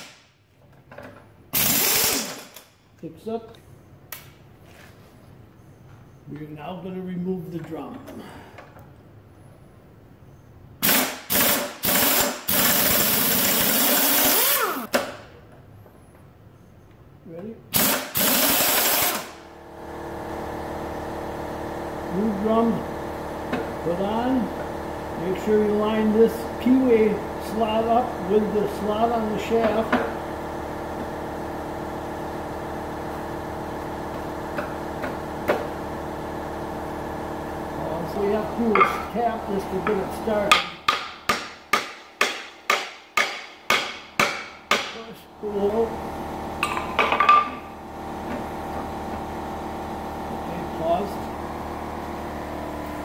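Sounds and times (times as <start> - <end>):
motor humming: 12.9 - 14.9.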